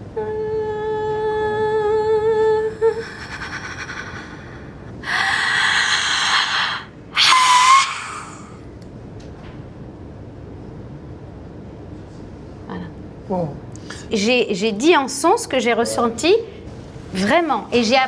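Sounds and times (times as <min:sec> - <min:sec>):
woman humming: 0:00.0 - 0:08.5
woman's breathy sound: 0:04.2 - 0:06.9
woman crying out: 0:05.1 - 0:08.5
woman shrieking: 0:05.1 - 0:08.6.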